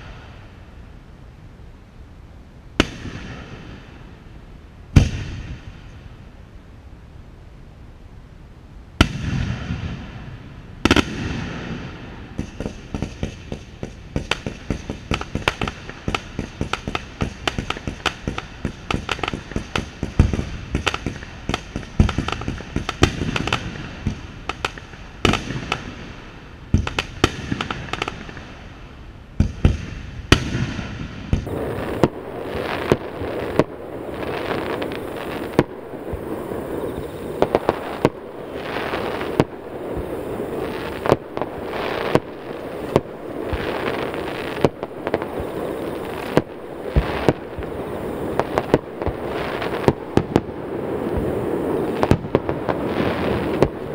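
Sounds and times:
fireworks crackling: 0:00.0 - 0:00.6, 0:09.0 - 0:53.9
fireworks bangs: 0:02.8 - 0:04.2, 0:04.9 - 0:05.9, 0:09.0 - 0:28.7, 0:29.4 - 0:53.9.

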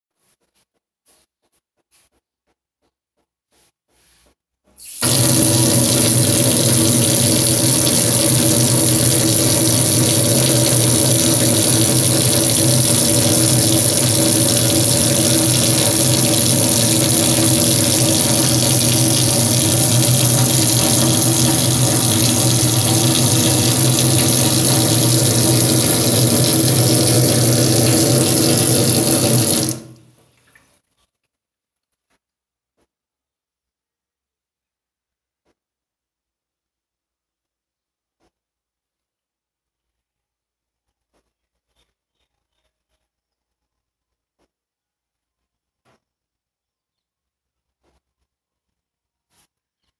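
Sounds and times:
tap water running into sink: 0:04.8 - 0:30.6.

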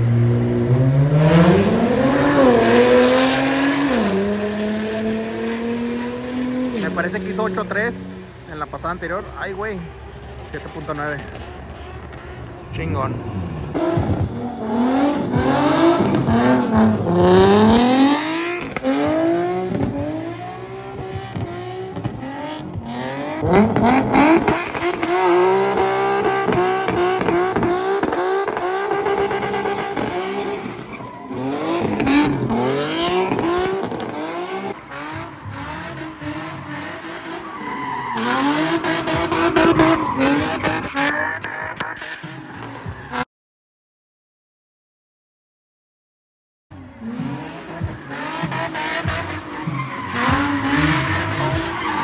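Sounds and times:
car engine revving hard: 0:00.0 - 0:07.0, 0:13.2 - 0:42.4, 0:47.0 - 0:52.0
tires squealing and skidding: 0:08.7 - 0:43.2, 0:47.0 - 0:52.0.

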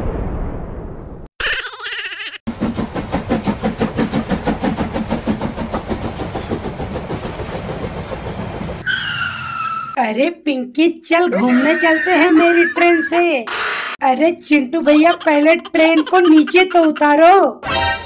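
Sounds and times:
cartoon train chugging: 0:01.4 - 0:10.0, 0:11.3 - 0:13.8, 0:14.7 - 0:18.0
train whistle: 0:08.8 - 0:10.0.

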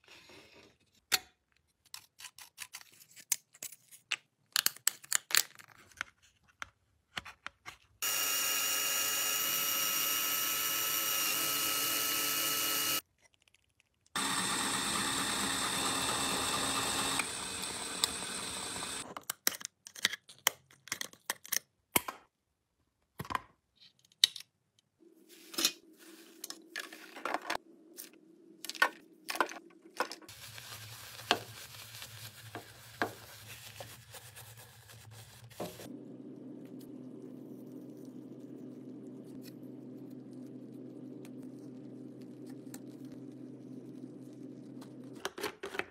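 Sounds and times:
handheld power tool running: 0:08.0 - 0:13.0, 0:14.2 - 0:19.0
stiff bristle brush scrubbing: 0:30.3 - 0:35.9.

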